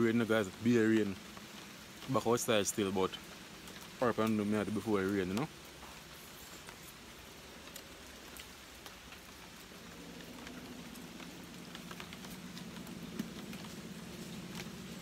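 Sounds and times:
rain falling: 0:00.0 - 0:15.0
low steady hum: 0:07.3 - 0:15.0.

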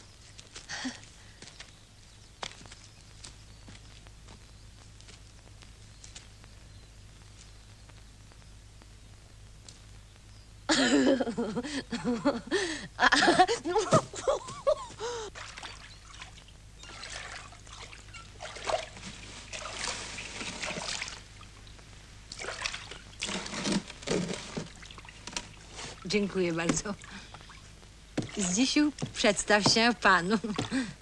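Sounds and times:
water splashing: 0:15.3 - 0:21.5, 0:22.3 - 0:29.9.

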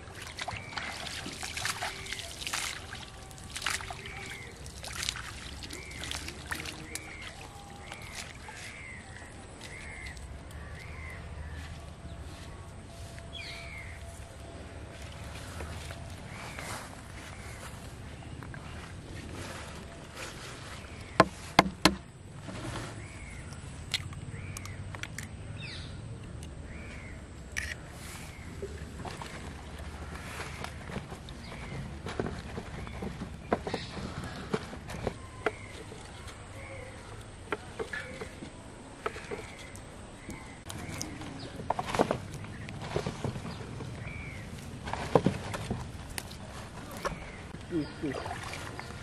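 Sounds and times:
hand splashing pond water: 0:00.0 - 0:10.3, 0:28.2 - 0:31.4, 0:45.8 - 0:49.0
bird calling: 0:00.4 - 0:21.6, 0:26.7 - 0:45.2, 0:46.5 - 0:49.0.

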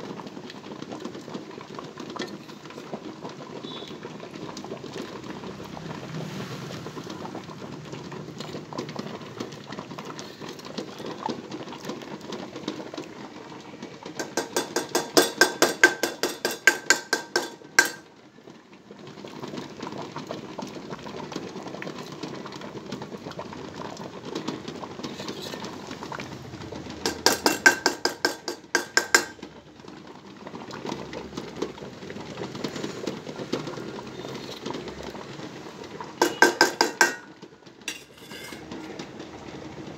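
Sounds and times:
spoon clinking against bowl: 0:14.2 - 0:18.0, 0:27.1 - 0:29.4, 0:36.2 - 0:37.3, 0:37.9 - 0:38.7
metal spoon scraping honey in bowl: 0:37.9 - 0:38.7.

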